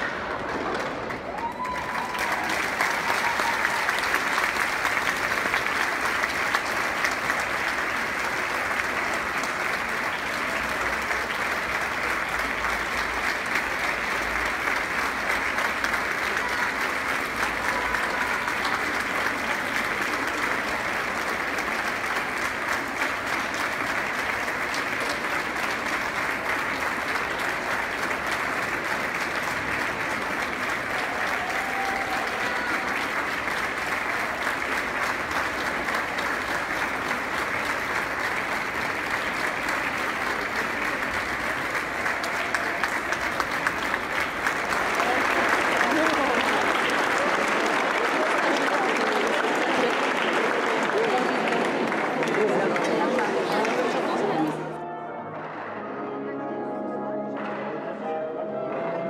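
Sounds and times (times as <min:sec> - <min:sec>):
audience applauding: 0:00.0 - 0:54.8.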